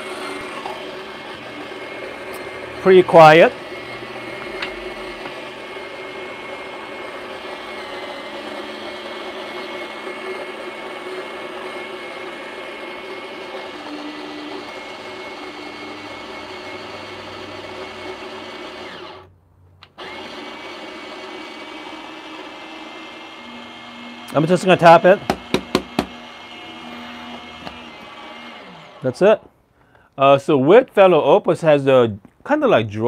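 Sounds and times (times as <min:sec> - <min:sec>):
coffee grinder motor whir: 0:00.0 - 0:29.2.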